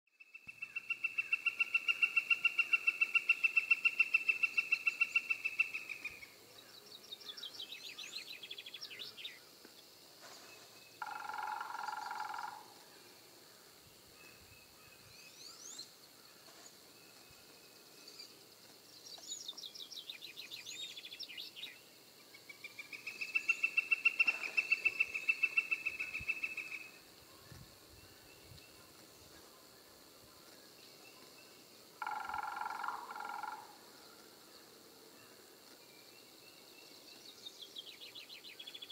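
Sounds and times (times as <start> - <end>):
woodpecker long call: 0.2 - 6.4, 11.0 - 16.4, 22.6 - 27.0, 32.0 - 34.2.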